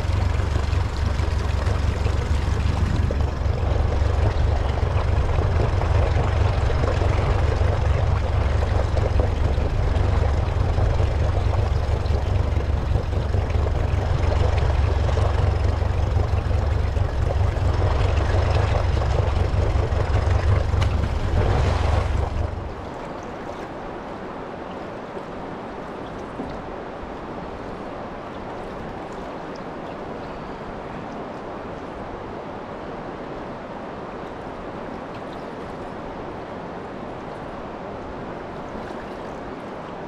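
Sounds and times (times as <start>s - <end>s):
wind buffeting microphone: 0.0s - 24.5s
rushing wind and river water: 0.0s - 40.0s.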